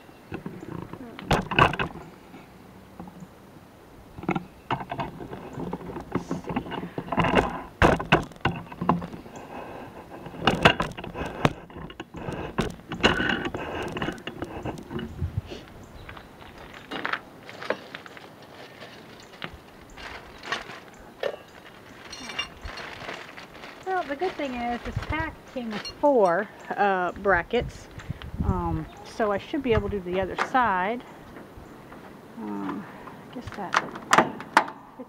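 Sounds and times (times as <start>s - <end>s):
metal brackets knocking and rattling: 0.3s - 2.1s, 4.2s - 9.3s, 10.0s - 15.2s, 20.5s - 22.8s.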